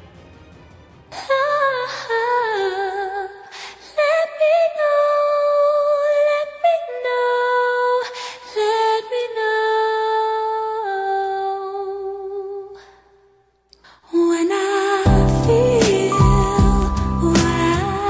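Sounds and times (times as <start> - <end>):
woman singing wordless melody: 1.2 - 13.1, 13.9 - 18.0
full band with bass: 15.1 - 18.0.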